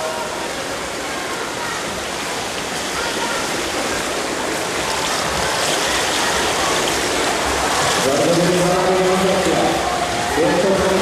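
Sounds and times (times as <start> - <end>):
swimmers splashing: 0.0 - 11.0.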